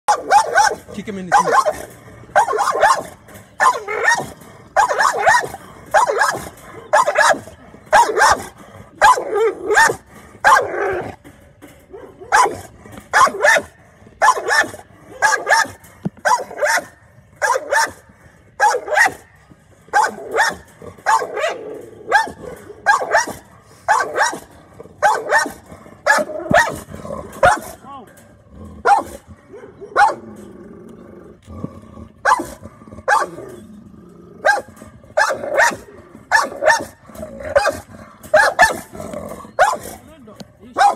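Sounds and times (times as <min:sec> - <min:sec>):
dog barking: 0:00.1 - 0:01.8, 0:02.4 - 0:07.4, 0:09.0 - 0:10.7, 0:11.9 - 0:12.6, 0:13.2 - 0:18.0, 0:18.6 - 0:19.2, 0:20.0 - 0:24.4, 0:25.0 - 0:26.8, 0:28.9 - 0:30.2, 0:32.3 - 0:32.5, 0:33.1 - 0:33.4, 0:34.4 - 0:37.0, 0:37.6 - 0:38.8.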